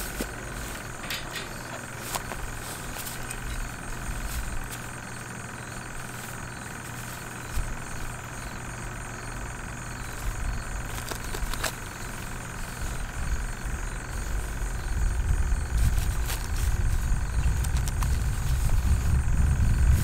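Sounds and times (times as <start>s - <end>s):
steady low hum: 0.0s - 20.0s
wind buffeting microphone: 10.0s - 20.0s.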